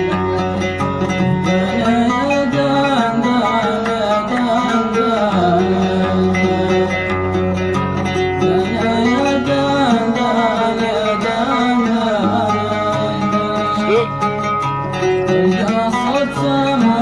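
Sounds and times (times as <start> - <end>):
man singing: 0.0 - 7.5, 8.3 - 14.5, 15.2 - 17.0
oud plucked: 0.0 - 17.0.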